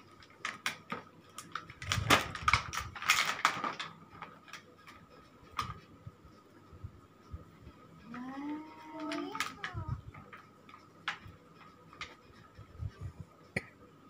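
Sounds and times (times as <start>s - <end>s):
gift wrapping rustling and crinkling: 0.0s - 5.9s, 8.0s - 12.8s.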